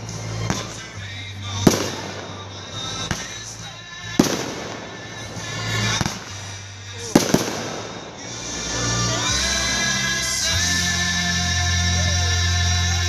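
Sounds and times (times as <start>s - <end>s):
music playing: 0.0s - 13.0s
firework shells bursting: 1.6s - 8.8s.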